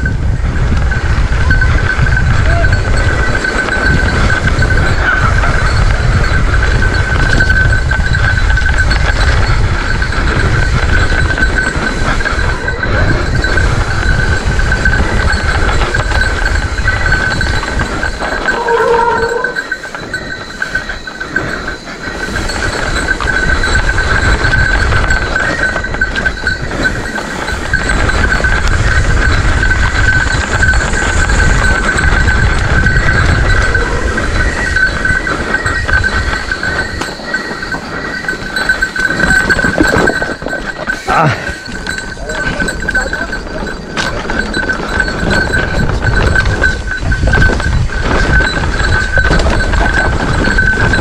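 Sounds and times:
bike rattling: 0:00.0 - 0:51.0
wind rumble: 0:00.0 - 0:51.0
steady high-pitched tone: 0:16.0 - 0:43.3
short pitched squeal: 0:18.5 - 0:21.1.

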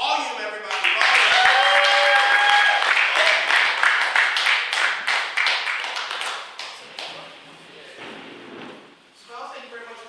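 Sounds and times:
audience applauding: 0:00.6 - 0:07.2
cheering shout: 0:00.8 - 0:03.6.

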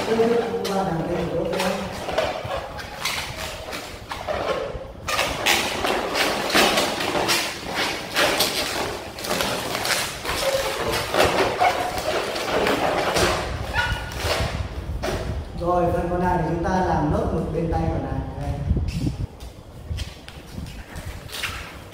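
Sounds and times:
balloons squeaking and rubbing: 0:00.0 - 0:14.6.

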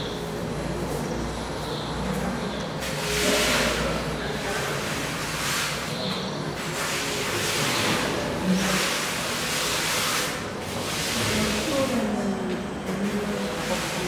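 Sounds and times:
broom swishing on paper: 0:06.6 - 0:12.1.

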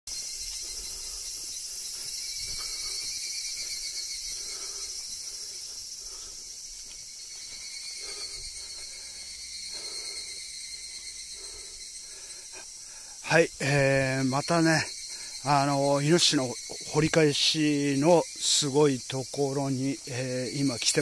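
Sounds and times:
shrill insect chorus: 0:00.1 - 0:21.0.

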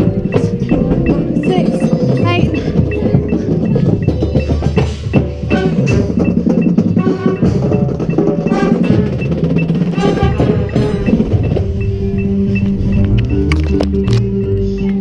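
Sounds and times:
marching band playing: 0:00.0 - 0:14.2
steady high tick: 0:00.0 - 0:15.0.

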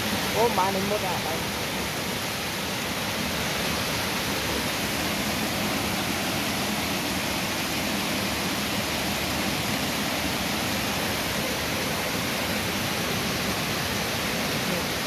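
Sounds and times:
water spilling over weir: 0:00.0 - 0:15.0.

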